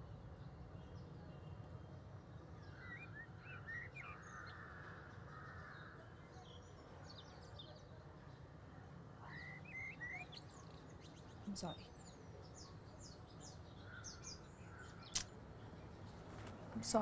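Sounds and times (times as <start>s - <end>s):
low background hum: 8.2s - 17.0s
birds chirping: 9.2s - 17.0s.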